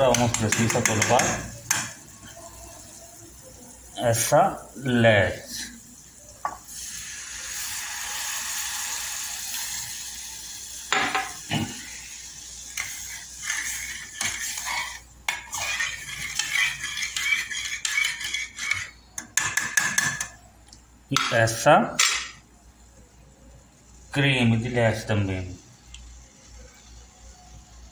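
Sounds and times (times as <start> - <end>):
milk sizzling in hot pot: 0.0 - 20.5
metal spoon scraping pot: 12.7 - 20.4.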